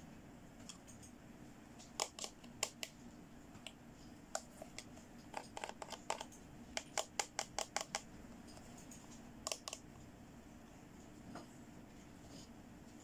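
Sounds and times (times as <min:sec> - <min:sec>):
plastic toy clicking: 0:09.5 - 0:09.8.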